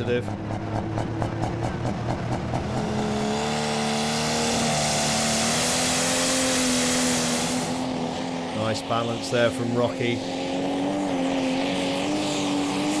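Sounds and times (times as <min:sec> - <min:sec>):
tractor diesel engine revving: 0:00.0 - 0:13.0
loud hissing rush: 0:04.6 - 0:08.0.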